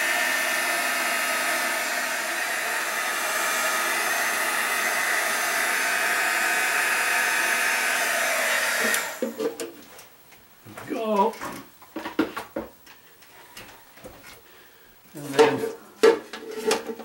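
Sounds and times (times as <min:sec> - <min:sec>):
heat gun blowing with faint whine: 0:00.0 - 0:09.6.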